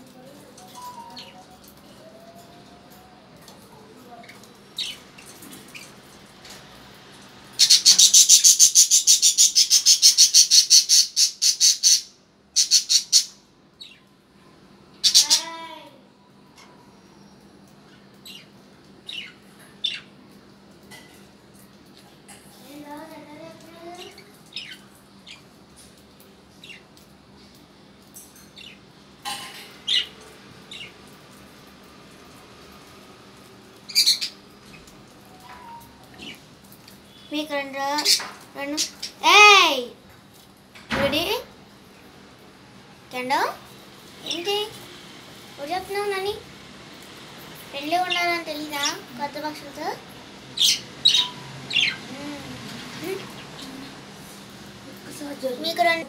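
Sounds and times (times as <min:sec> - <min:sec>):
parrots chirping: 0:07.6 - 0:13.4, 0:50.5 - 0:54.0.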